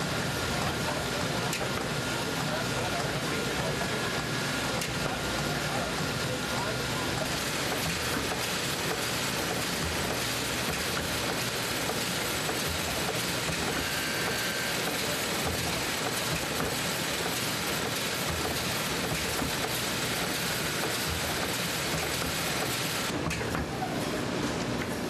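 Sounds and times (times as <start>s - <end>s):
machinery mechanical rush: 0.2s - 24.7s.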